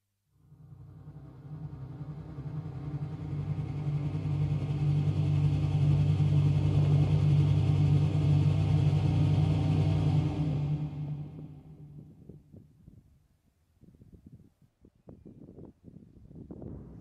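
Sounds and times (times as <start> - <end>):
low rumbling drone: 0.4 - 13.2.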